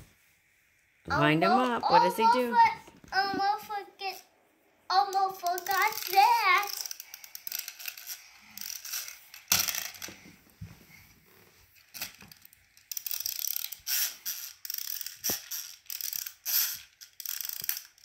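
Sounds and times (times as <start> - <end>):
wind-up toy ratcheting clicks: 5.0 - 10.1, 11.9 - 18.0.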